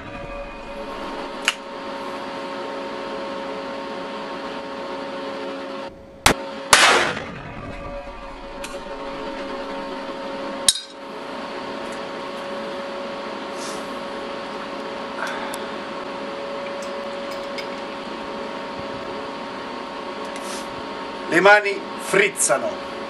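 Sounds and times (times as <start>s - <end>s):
steady background hum: 0.0s - 23.0s
revolver gunshot: 6.2s - 9.8s.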